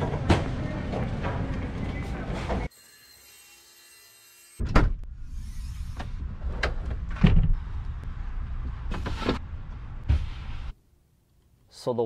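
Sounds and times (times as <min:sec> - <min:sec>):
steady low rumble: 0:06.2 - 0:10.7.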